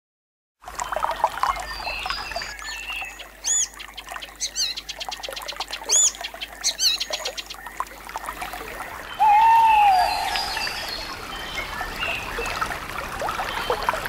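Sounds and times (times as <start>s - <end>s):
birds chirping and whistling: 1.8s - 3.8s, 4.4s - 7.5s, 9.1s - 12.3s
loud arched bird notes: 9.1s - 11.1s.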